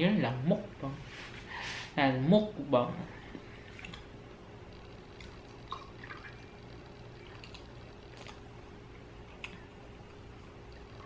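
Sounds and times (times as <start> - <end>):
liquid trickling into a glass: 5.2 - 8.4.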